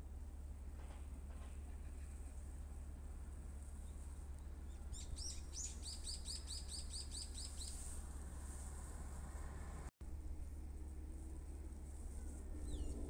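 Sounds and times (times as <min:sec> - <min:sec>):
songbird chirping: 0:03.8 - 0:07.9.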